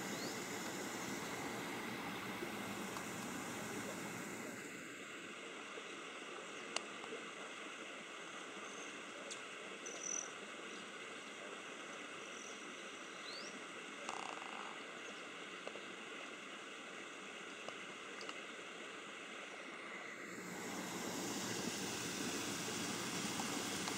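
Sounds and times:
insects droning: 0.0s - 5.3s, 19.2s - 23.9s.

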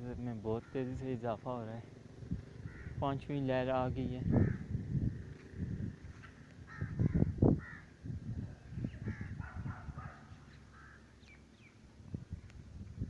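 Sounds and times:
crows cawing: 0.6s - 1.2s, 2.5s - 3.1s, 4.2s - 4.8s, 6.6s - 8.0s, 9.0s - 11.4s.

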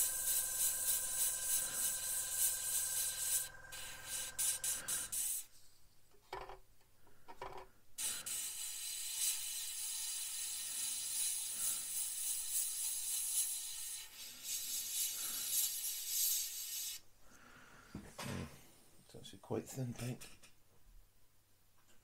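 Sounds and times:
airbrush hissing: 0.0s - 5.5s, 8.0s - 17.0s.

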